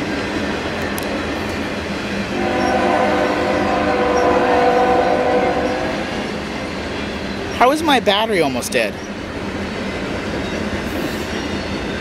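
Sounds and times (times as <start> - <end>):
train cars rumbling past: 0.0 - 12.0
locomotive air horn blast: 2.3 - 6.3.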